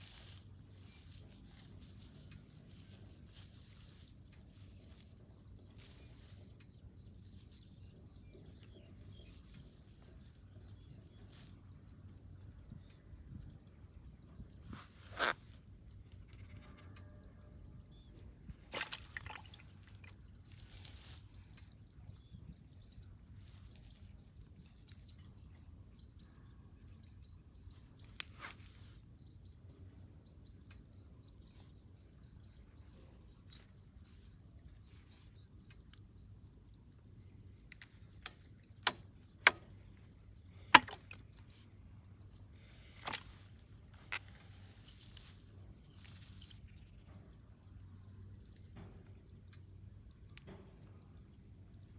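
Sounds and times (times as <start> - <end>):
handling wet net: 18.6 - 21.7, 42.6 - 46.8.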